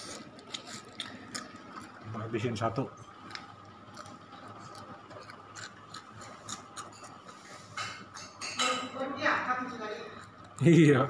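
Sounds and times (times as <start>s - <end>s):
crunchy food being chewed: 0.0s - 2.2s, 3.0s - 8.2s, 10.1s - 10.9s
faint steady hum: 0.0s - 11.0s.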